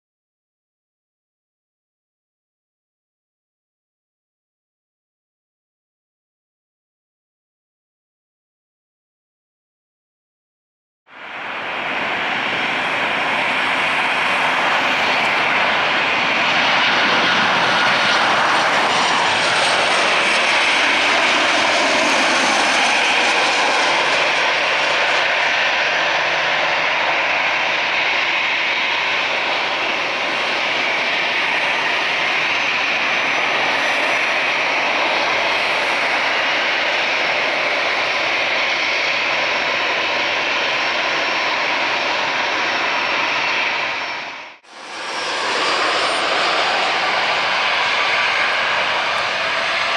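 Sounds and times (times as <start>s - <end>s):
faint jet whine: 11.1s - 49.9s
jet engines landing: 11.1s - 49.9s.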